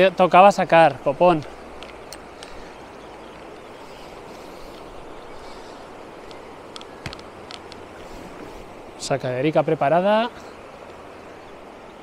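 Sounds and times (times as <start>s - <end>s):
river rushing: 0.0s - 12.0s
light clicks: 6.2s - 7.9s.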